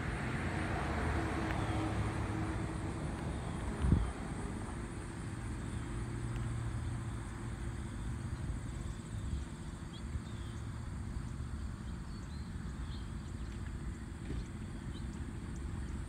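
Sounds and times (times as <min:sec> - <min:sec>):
wind rumbling on microphone: 0:00.0 - 0:05.4.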